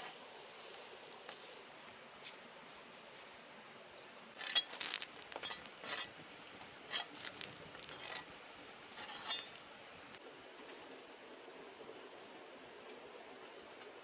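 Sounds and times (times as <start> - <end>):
spatula scraping metal pan: 9.0 - 9.5.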